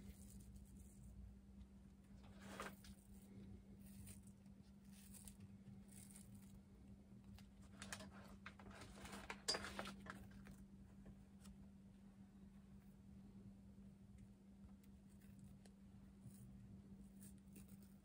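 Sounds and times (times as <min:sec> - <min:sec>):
steady low hum: 0:00.0 - 0:18.0
plastic scratching and peeling: 0:07.2 - 0:10.6.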